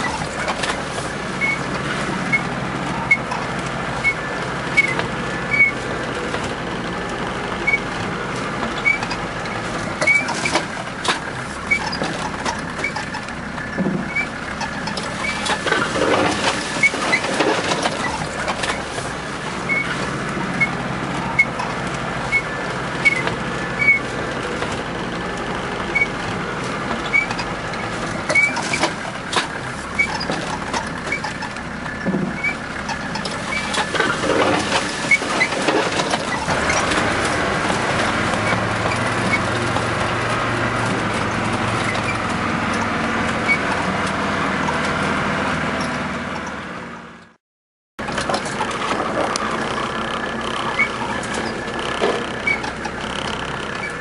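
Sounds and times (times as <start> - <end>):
knocks and rattles from bumps: 0.0 - 45.2, 48.0 - 54.0
car engine and road noise: 0.0 - 47.4, 48.0 - 54.0.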